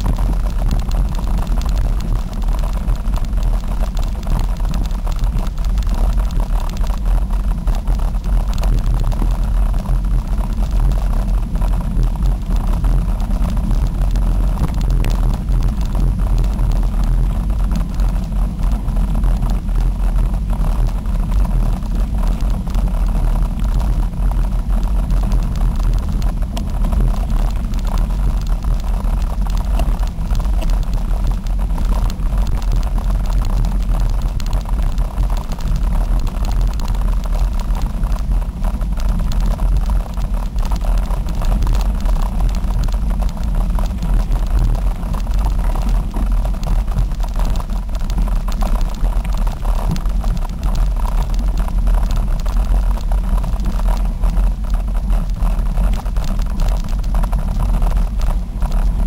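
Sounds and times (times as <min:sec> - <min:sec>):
wind buffeting microphone: 0:00.0 - 0:36.8.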